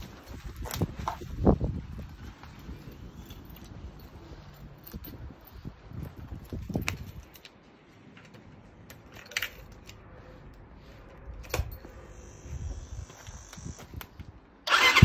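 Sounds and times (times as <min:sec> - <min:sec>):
motorcycle engine starting loudly: 0:14.7 - 0:15.0.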